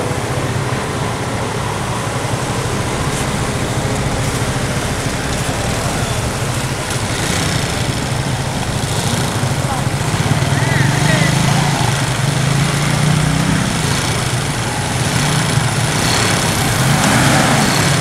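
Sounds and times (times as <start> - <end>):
engines humming: 0.0 - 18.0
cars driving over dirt road: 2.0 - 18.0.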